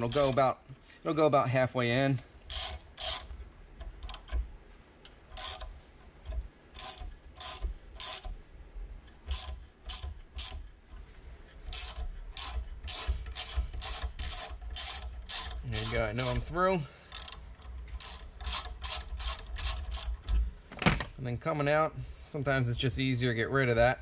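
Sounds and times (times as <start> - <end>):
ratcheting tap handle clicking: 0.0 - 0.4, 2.4 - 4.5, 5.1 - 8.4, 9.1 - 10.7, 11.6 - 20.4.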